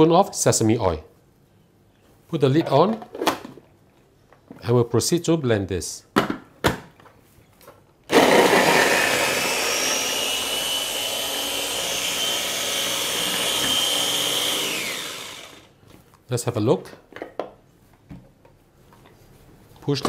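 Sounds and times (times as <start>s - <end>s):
electric chopper whirring: 8.1s - 15.7s.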